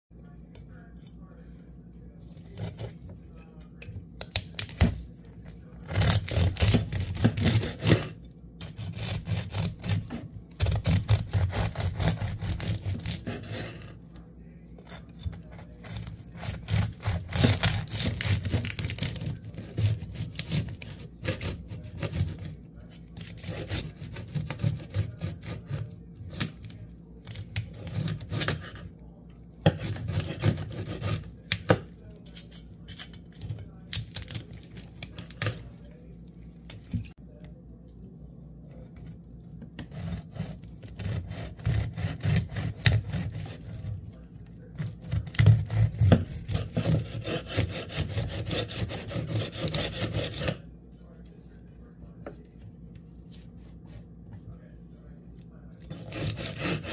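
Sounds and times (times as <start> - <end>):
knife sawing through crackling skin: 2.4 - 3.0, 5.8 - 13.9, 14.8 - 28.9, 29.6 - 31.6, 39.8 - 50.7, 55.8 - 56.9.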